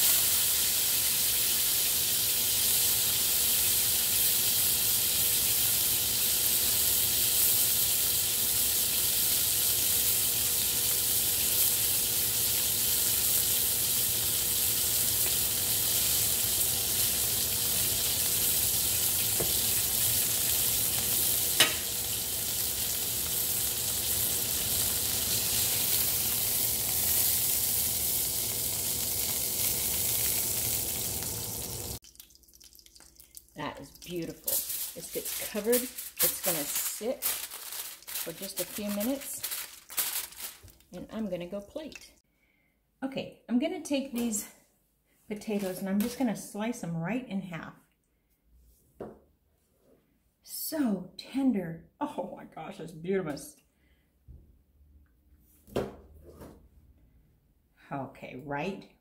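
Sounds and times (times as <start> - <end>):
steak sizzling in a skillet: 0.0 - 32.0.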